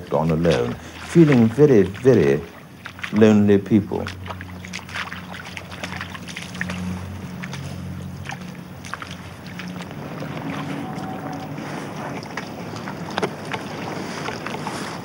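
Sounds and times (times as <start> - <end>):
boots splashing through water and mud: 0.0 - 15.0
low steady hum: 0.0 - 15.0.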